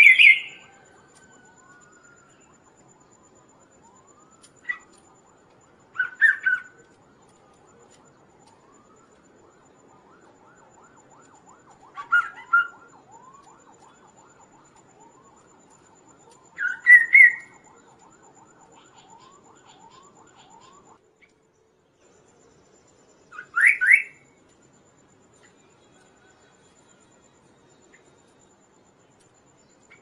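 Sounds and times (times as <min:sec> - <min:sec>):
bird singing: 0:00.0 - 0:03.2, 0:05.9 - 0:07.4, 0:16.2 - 0:24.3.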